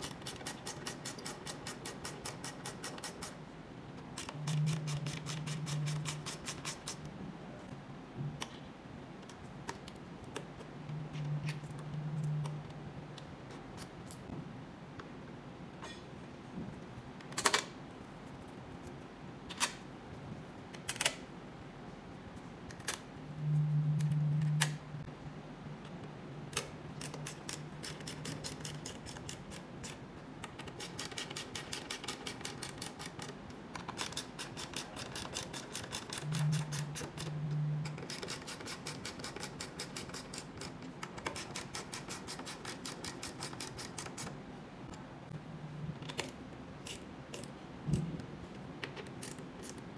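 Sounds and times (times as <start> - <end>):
low hum: 10.8 - 13.0, 23.2 - 26.0, 36.2 - 38.0.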